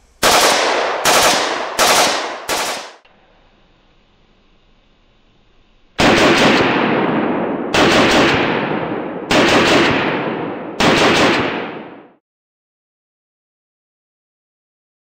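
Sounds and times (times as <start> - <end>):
automatic rifle bursts: 0.2 - 3.0.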